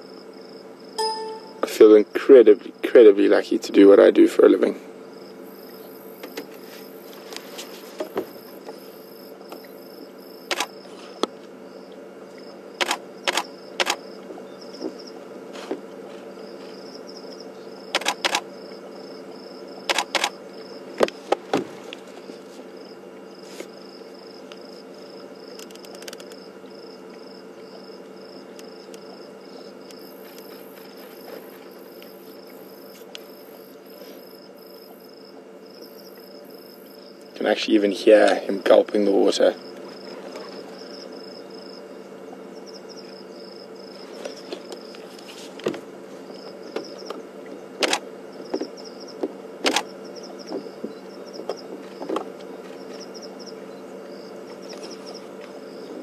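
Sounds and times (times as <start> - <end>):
night insects chirping: 0.0 - 15.4, 16.1 - 56.0
low steady hum: 0.0 - 56.0
sharp clicks: 25.6 - 26.4.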